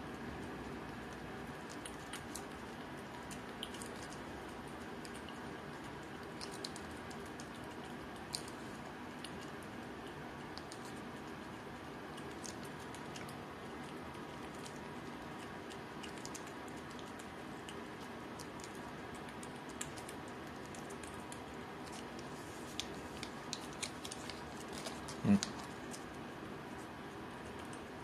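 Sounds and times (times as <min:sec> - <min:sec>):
cat licking tongue clicks: 0:01.6 - 0:09.6, 0:10.4 - 0:11.1, 0:12.2 - 0:24.4.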